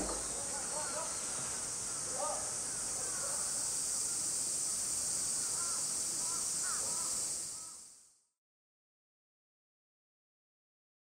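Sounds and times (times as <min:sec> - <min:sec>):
cicadas chorus: 0:00.0 - 0:08.2.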